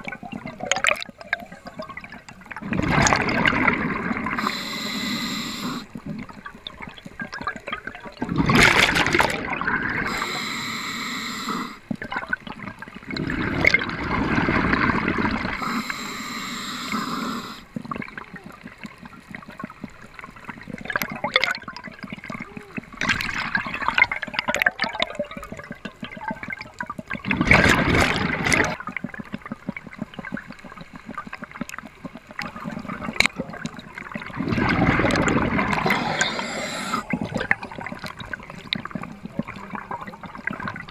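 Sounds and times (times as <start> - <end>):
fine clicks and crackles: 0.0 - 4.5, 5.8 - 10.6, 11.7 - 17.0, 17.6 - 40.9
underwater water noise: 0.0 - 40.9
surges of rushing water: 27.2 - 28.8, 32.4 - 40.9.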